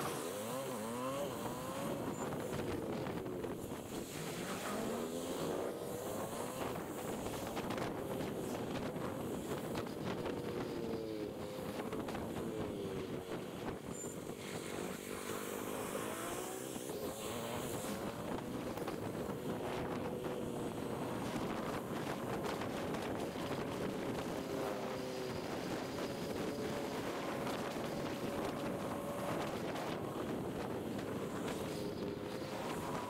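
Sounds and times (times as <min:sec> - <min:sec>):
wind and road noise: 0:00.0 - 0:33.0.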